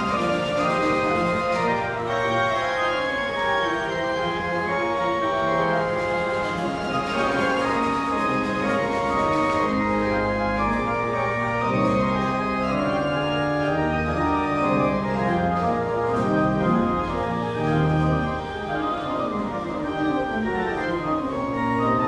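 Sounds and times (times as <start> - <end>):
pipe organ playing: 0.0 - 22.0.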